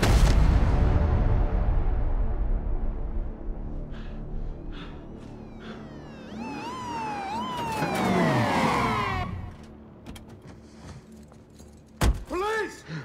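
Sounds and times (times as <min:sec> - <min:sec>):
police car sirens: 0:04.5 - 0:09.9.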